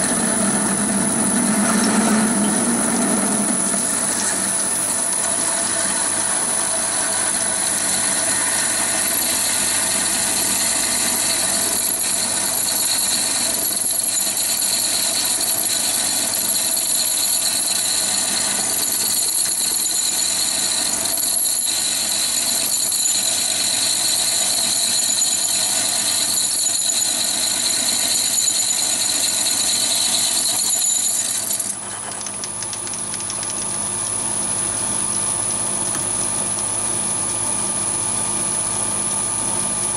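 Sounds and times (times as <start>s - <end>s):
lathe drone: 0.0s - 31.8s
drill cutting whine: 0.0s - 31.9s.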